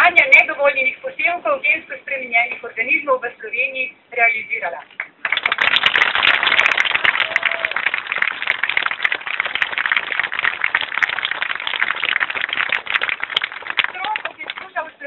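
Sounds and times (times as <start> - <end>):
crowd applauding: 5.1 - 14.7.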